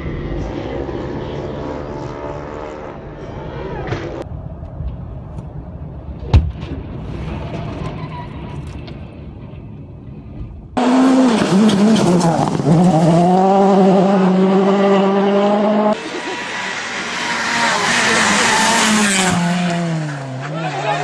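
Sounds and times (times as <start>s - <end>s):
low rumble of road and truck: 0.0s - 21.0s
car engine revving hard: 10.8s - 20.4s.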